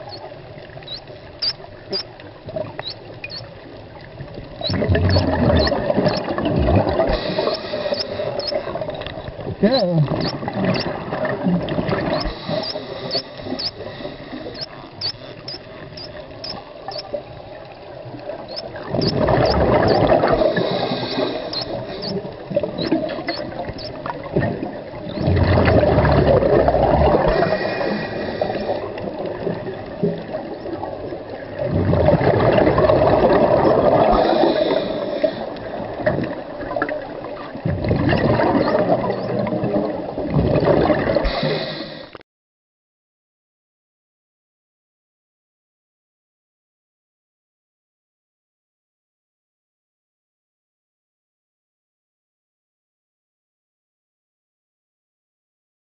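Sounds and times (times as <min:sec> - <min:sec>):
bubbling regulator exhalation: 0:04.6 - 0:08.9, 0:09.5 - 0:15.2, 0:18.5 - 0:30.4, 0:31.5 - 0:36.3, 0:37.6 - 0:41.9
regulator hiss: 0:20.4 - 0:22.2, 0:27.4 - 0:28.9, 0:41.3 - 0:42.2.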